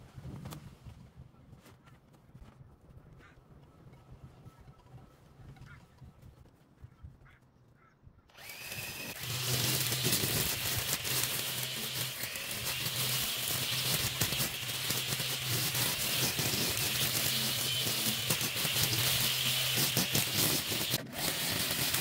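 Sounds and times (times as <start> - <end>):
electric string trimmer whine: 8.3 - 22.0
trimmer line cutting grass: 8.3 - 22.0.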